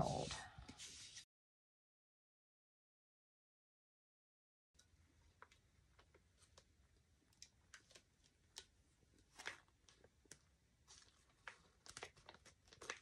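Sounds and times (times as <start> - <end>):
plastic transfer crinkling and peeling: 7.3 - 13.0.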